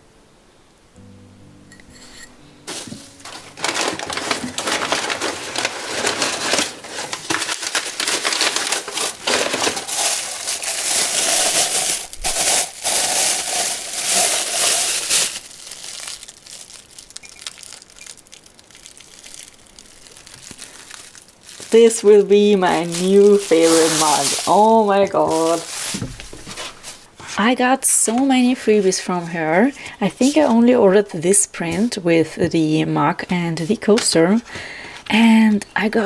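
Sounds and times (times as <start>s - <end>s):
plastic bag crinkling: 2.7s - 27.1s.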